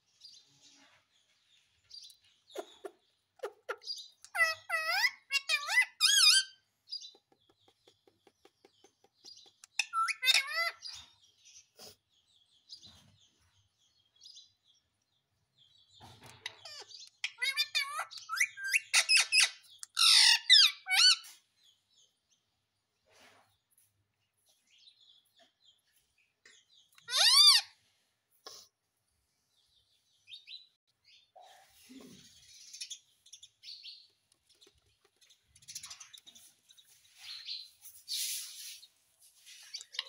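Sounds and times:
parrot calling: 2.6 - 6.6, 9.7 - 10.9, 16.5 - 21.2, 27.0 - 27.8.

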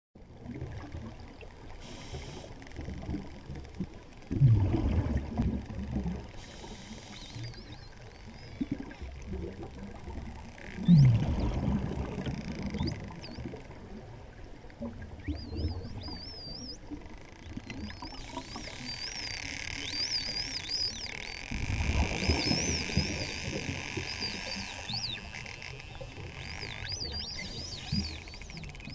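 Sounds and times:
whales whistling underwater: 6.0 - 13.8, 14.8 - 28.9.

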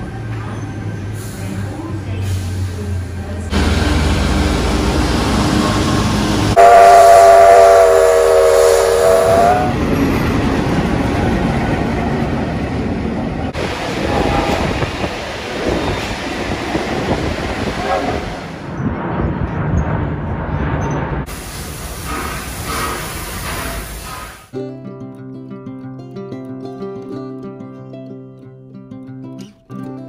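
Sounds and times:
train running on rails: 0.0 - 24.5
locomotive horn chord: 6.6 - 9.7.

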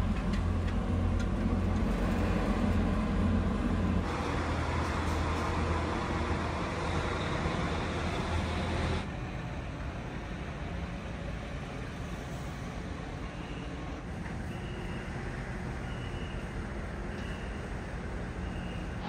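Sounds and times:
diesel truck engine rumble: 0.0 - 9.6.

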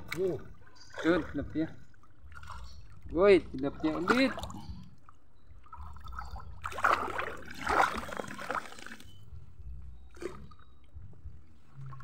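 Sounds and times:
water splashing and dripping: 0.0 - 9.4.

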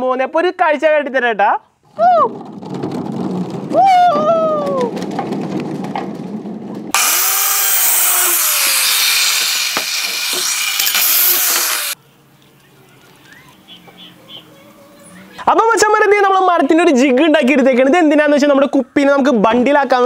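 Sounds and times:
circular saw cutting wood: 6.9 - 12.0.

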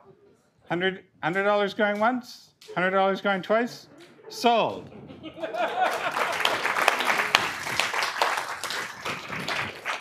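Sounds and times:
audience applause: 5.4 - 10.0.

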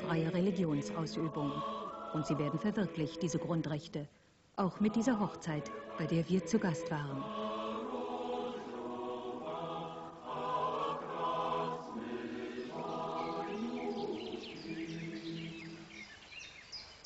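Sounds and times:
choir singing held chords: 0.0 - 3.9, 4.6 - 16.1
birds chirping: 11.3 - 17.0.

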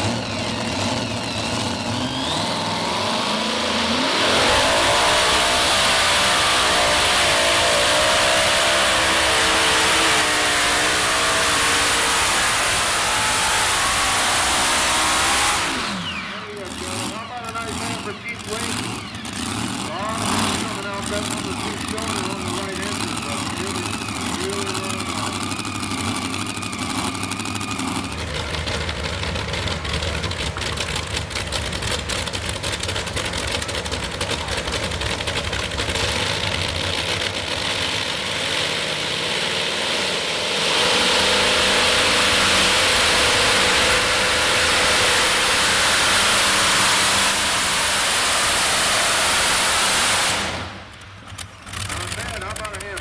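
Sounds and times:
tractor engines revving: 0.0 - 53.0.

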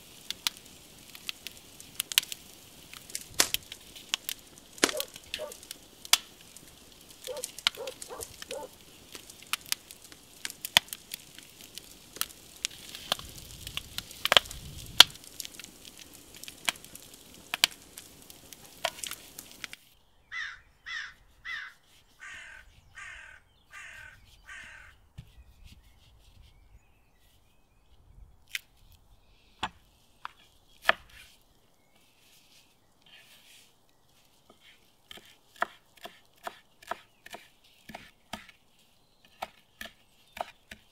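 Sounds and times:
charcoal fire crackling: 0.0 - 23.2, 23.8 - 40.9
crow cawing: 20.3 - 25.0.

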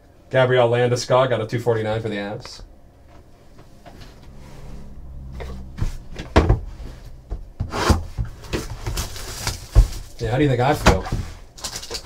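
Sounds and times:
card packs rubbing: 7.7 - 12.0.

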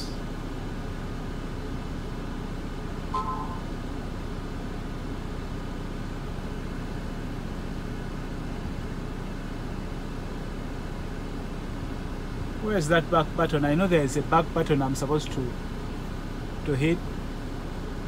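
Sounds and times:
truck cab rumble: 0.0 - 6.2
electronic notification beep: 3.1 - 3.7.

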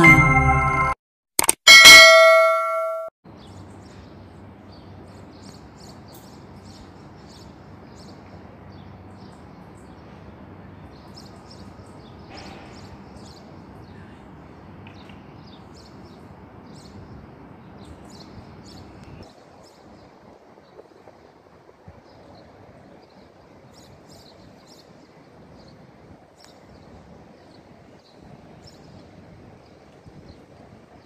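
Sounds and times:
bright chime: 0.0 - 1.0, 1.7 - 3.1
low city hum: 1.9 - 31.0
small birds chirping: 3.4 - 20.9.

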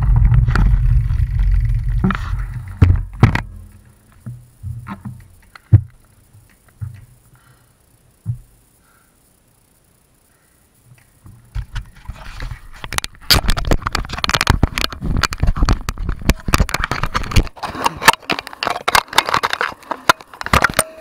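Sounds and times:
camera handling scraping and clicks: 11.6 - 21.0.

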